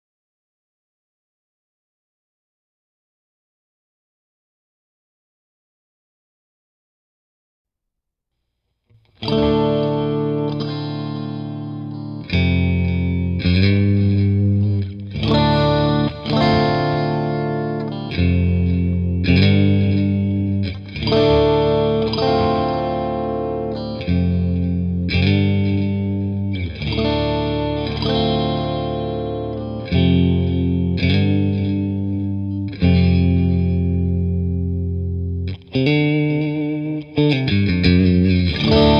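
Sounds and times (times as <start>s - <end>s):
electric guitar chords ringing: 9.0s - 38.9s.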